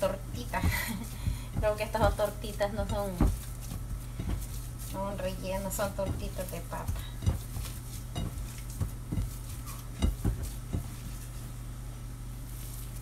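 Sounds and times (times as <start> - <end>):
hand mixing food in bowl: 0.0 - 11.7, 12.4 - 13.0.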